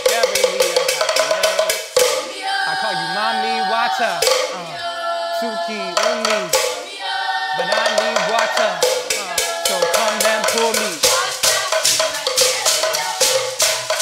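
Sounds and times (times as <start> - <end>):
percussion hits: 0.0 - 4.9, 5.5 - 14.0
voices singing: 0.0 - 14.0
low male voice singing: 2.6 - 6.7, 7.6 - 11.0.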